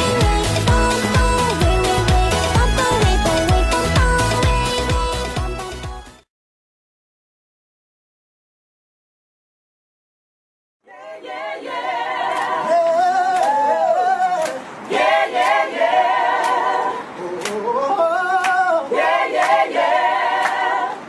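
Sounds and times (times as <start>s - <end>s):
group singing in unison: 0.0s - 5.2s, 10.8s - 21.0s
sharp hand claps: 13.3s - 13.6s, 14.4s - 14.6s, 17.4s - 17.6s, 18.4s - 18.6s, 19.4s - 19.6s.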